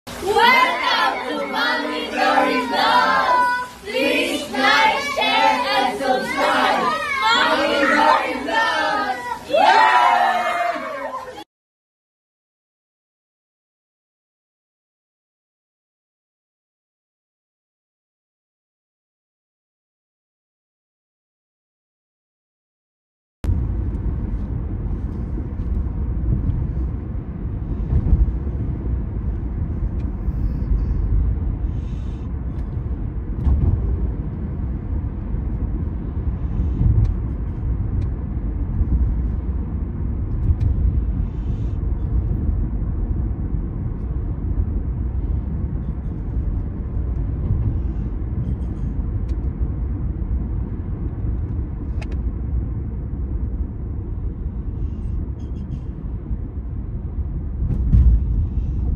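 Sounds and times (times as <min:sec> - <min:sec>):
car driving road noise: 0:00.1 - 0:10.8, 0:23.5 - 0:58.9.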